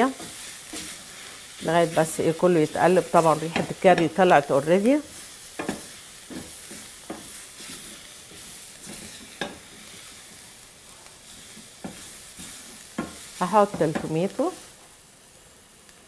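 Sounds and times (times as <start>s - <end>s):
food sizzling in a pan: 0.0s - 16.0s
wooden spatula scraping pan: 0.1s - 10.2s.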